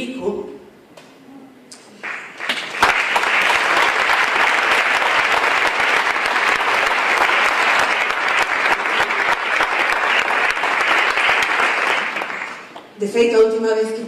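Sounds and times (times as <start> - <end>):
audience applauding: 2.0 - 13.0.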